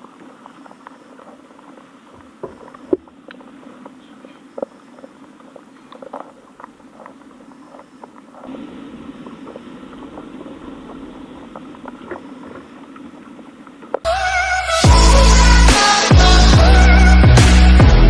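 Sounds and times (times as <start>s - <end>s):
muffled underwater hum: 0.0s - 15.6s
faint clicks and taps: 0.1s - 8.6s.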